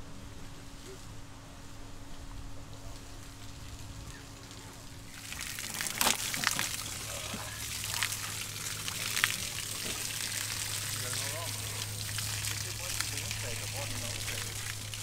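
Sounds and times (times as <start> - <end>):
shower water splashing on ground: 3.0 - 15.0
fish being rinsed clicks: 5.4 - 7.4.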